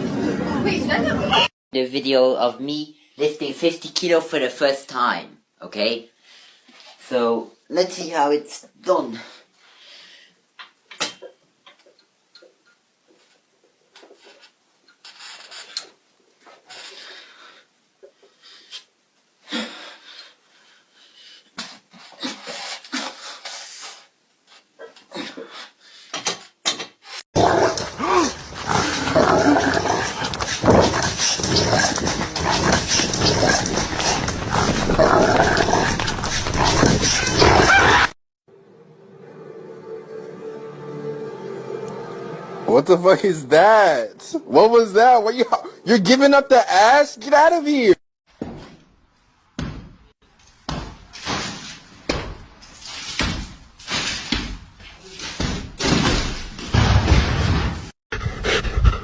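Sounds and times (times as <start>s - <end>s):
dog growling and barking: 27.4s - 38.2s
racket banging against door and walls: 49.6s - 57.9s.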